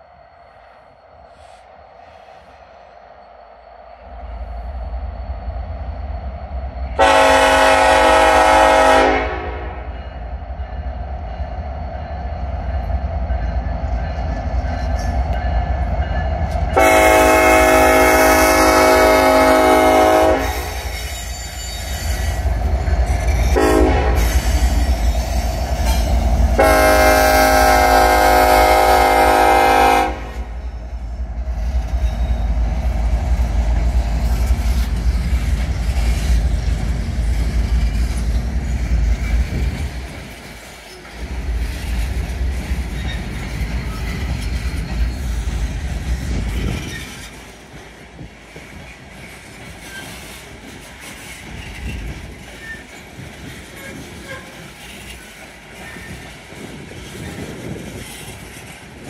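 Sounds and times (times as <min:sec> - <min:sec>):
locomotive air horn: 0:07.0 - 0:09.9, 0:16.8 - 0:20.9, 0:23.5 - 0:24.4, 0:26.5 - 0:30.6, 0:53.8 - 0:54.6.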